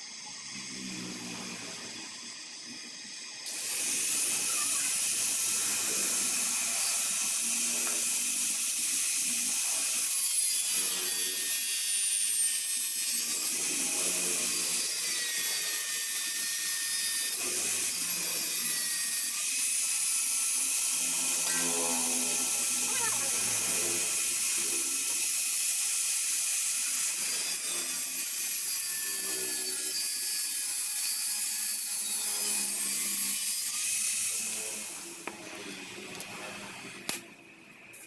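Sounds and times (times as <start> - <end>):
torch flame hissing: 1.0 - 10.1, 19.8 - 28.4.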